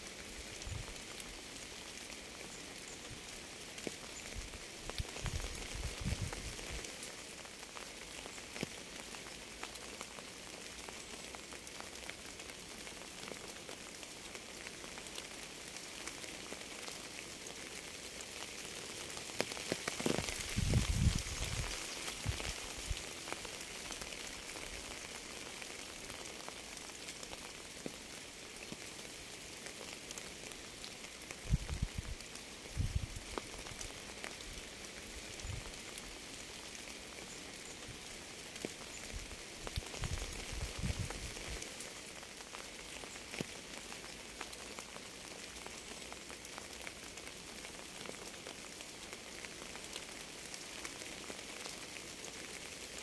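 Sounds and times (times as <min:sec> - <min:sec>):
steady rain falling: 0:00.0 - 0:53.0.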